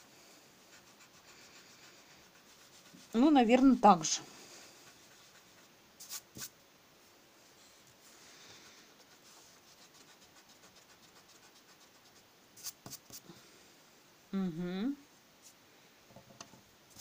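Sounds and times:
eraser rubbing on paper: 0:00.6 - 0:03.5, 0:04.4 - 0:06.5, 0:08.6 - 0:13.2.

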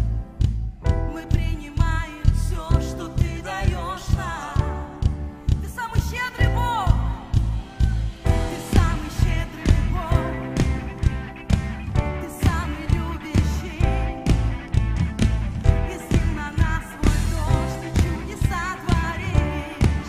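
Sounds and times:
live band playing upbeat pop: 0:00.0 - 0:20.0
steady drum beat: 0:00.0 - 0:20.0
person singing: 0:00.8 - 0:14.8, 0:15.6 - 0:20.0.

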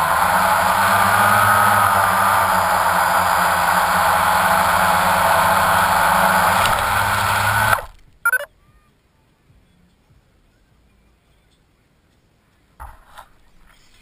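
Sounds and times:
drone motors and propellers: 0:00.0 - 0:08.5.

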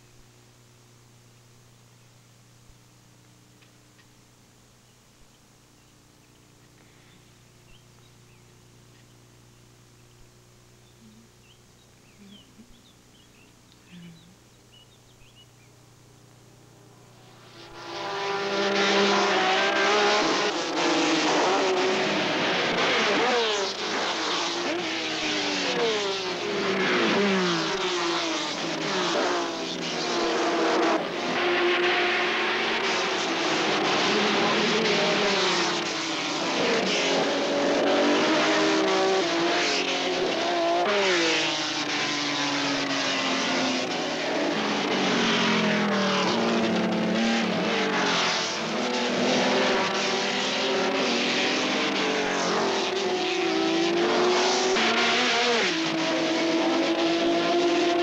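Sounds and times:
racing car engines at high revs: 0:17.1 - 0:58.0.

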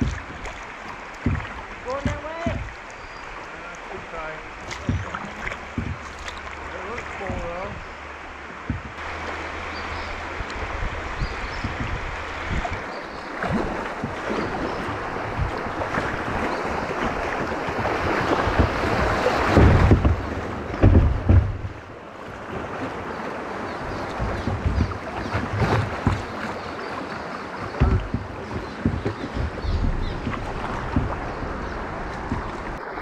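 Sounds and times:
wind buffeting microphone: 0:00.0 - 0:00.5, 0:07.2 - 0:26.5, 0:27.6 - 0:33.0
floodwater rushing and splashing: 0:00.0 - 0:33.0
paddle splashes: 0:00.0 - 0:33.0.

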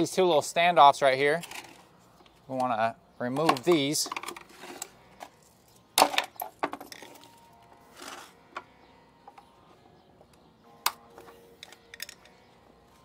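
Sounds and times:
metal tool clinking and knocking: 0:11.6 - 0:12.4.

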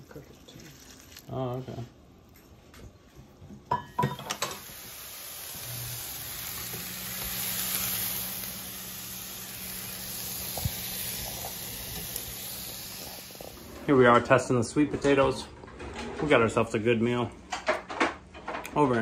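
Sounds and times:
food sizzling: 0:03.7 - 0:14.4.

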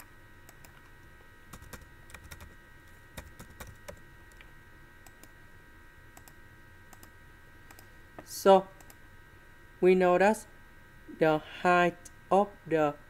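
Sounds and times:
faint electrical whine: 0:00.0 - 0:13.0
keyboard typing: 0:01.5 - 0:02.6, 0:03.2 - 0:05.3, 0:06.2 - 0:07.1.

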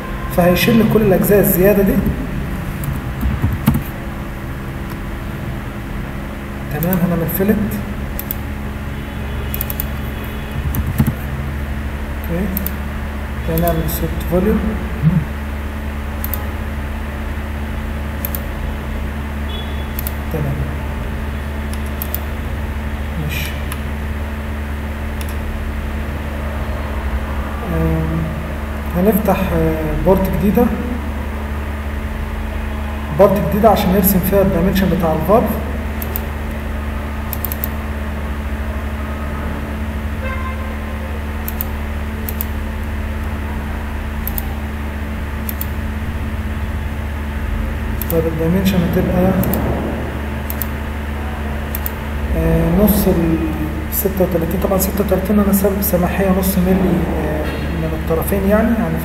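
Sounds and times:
low hum and hiss: 0:00.0 - 0:59.0
mouse clicks: 0:02.8 - 0:03.9, 0:09.5 - 0:10.0, 0:10.6 - 0:11.2, 0:20.0 - 0:20.2, 0:21.7 - 0:22.2, 0:37.3 - 0:37.8, 0:50.5 - 0:50.7, 0:51.7 - 0:52.0
computer mouse clicks: 0:02.8 - 0:04.0, 0:08.1 - 0:08.5, 0:09.5 - 0:11.3, 0:12.6 - 0:12.8, 0:16.2 - 0:16.5, 0:18.2 - 0:18.5, 0:20.0 - 0:20.2, 0:21.7 - 0:22.3, 0:25.2 - 0:25.4, 0:36.0 - 0:36.6, 0:37.3 - 0:37.8, 0:41.4 - 0:42.6, 0:44.2 - 0:44.5, 0:45.4 - 0:45.8, 0:49.4 - 0:49.8, 0:50.5 - 0:50.7, 0:51.7 - 0:52.0.

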